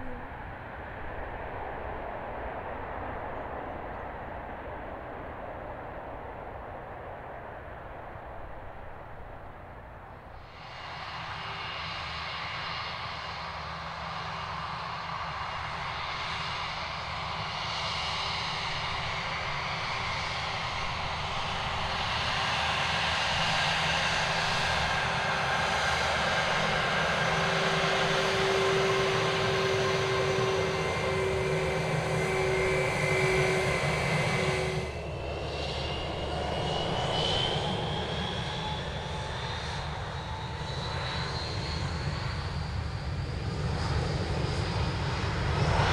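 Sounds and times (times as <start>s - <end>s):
jet engine whines: 0.0s - 45.9s
jet engines roaring: 0.0s - 45.9s.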